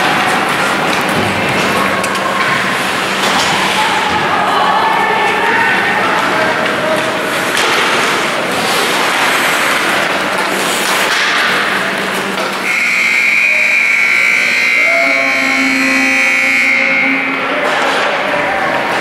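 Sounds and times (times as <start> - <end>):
ice rink play noise: 0.0 - 19.0
scoreboard horn blast: 12.6 - 17.6.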